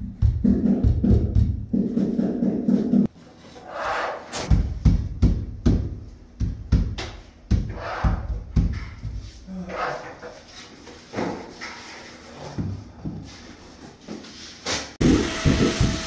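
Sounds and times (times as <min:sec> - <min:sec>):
knocks and thumps: 0:00.0 - 0:03.1, 0:04.4 - 0:09.3.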